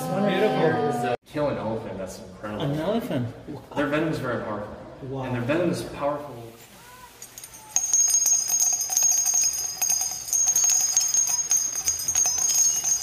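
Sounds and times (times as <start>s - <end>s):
jingle bells shaking: 7.1s - 13.0s.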